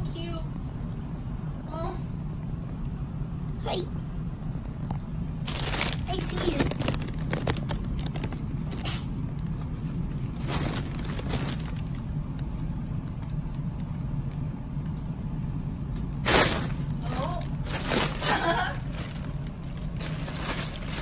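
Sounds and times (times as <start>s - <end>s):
steady low hum: 0.0s - 21.0s
plastic packaging crinkling: 5.4s - 12.1s, 16.2s - 21.0s.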